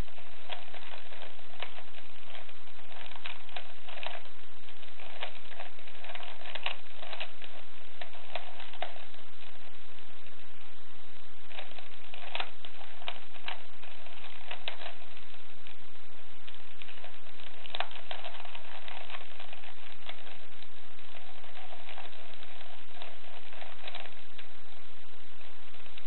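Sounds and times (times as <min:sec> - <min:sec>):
steady hiss: 0:00.0 - 0:26.0.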